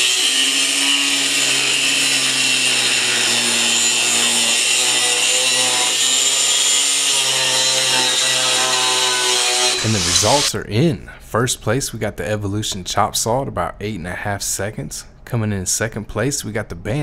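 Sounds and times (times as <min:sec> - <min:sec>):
angle grinder cutting steel: 0:00.0 - 0:10.5.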